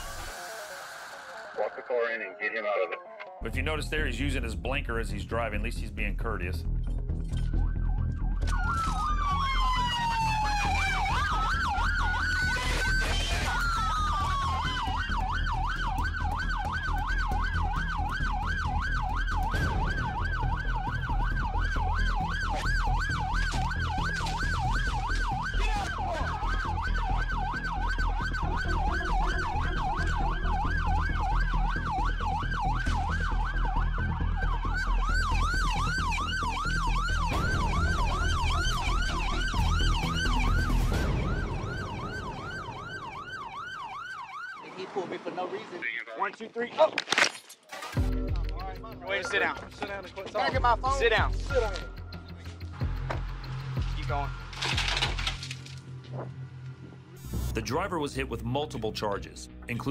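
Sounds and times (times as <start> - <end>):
police siren wailing and yelping: 7.3 - 44.9.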